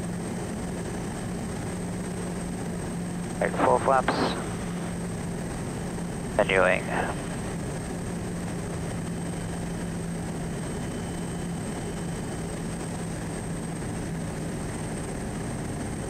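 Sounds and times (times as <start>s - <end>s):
turboprop engine drone: 0.0s - 16.0s
low steady hum: 2.6s - 11.3s.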